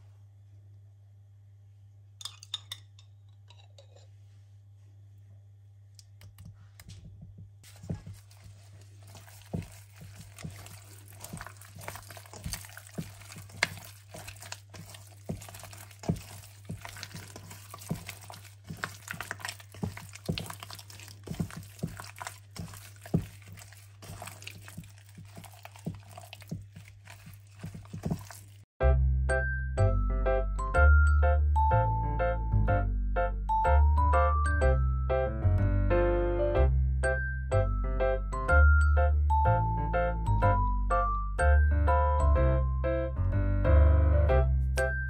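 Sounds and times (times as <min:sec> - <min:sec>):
wet squelching of meat kneading: 0:07.6 - 0:28.7.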